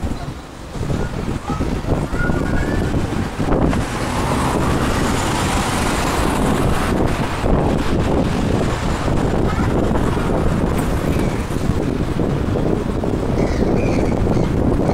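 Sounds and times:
cars driving past: 2.7s - 13.3s.

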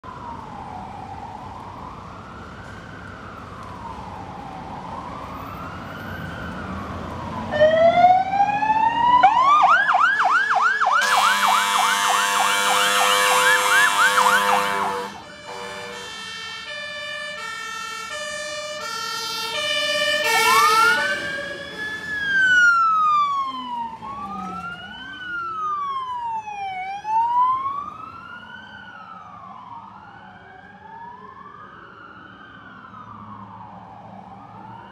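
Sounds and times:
overlapping wailing sirens: 0.0s - 34.9s
electronic siren wailing and yelping: 7.6s - 27.7s
loud air horn blast: 11.0s - 16.7s, 19.6s - 21.7s
two-tone horn high and low: 11.0s - 21.9s.

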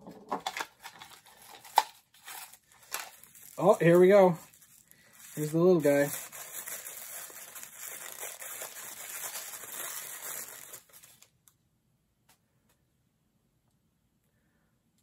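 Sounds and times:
paper wrapping crinkling: 0.4s - 11.4s.

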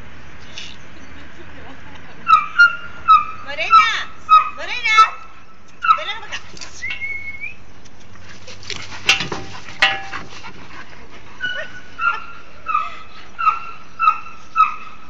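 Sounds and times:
dog whimpering: 11.4s - 13.6s.

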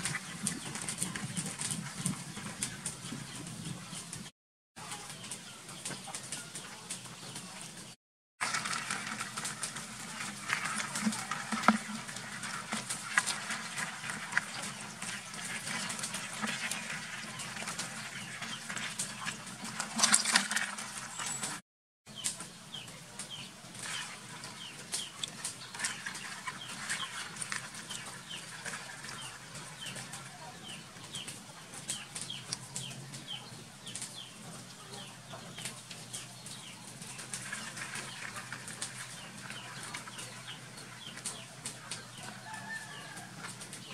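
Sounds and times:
chickens clucking: 0.0s - 21.6s, 22.2s - 43.9s
chicks peeping: 0.0s - 21.6s, 22.2s - 43.9s
crabs clicking in bucket of water: 8.4s - 22.5s, 23.2s - 34.5s, 35.4s - 43.9s.

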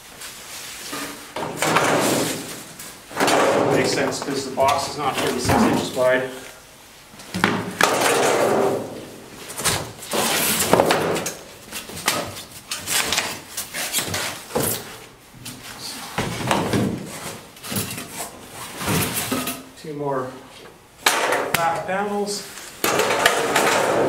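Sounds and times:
cardboard scraping: 9.4s - 11.0s.

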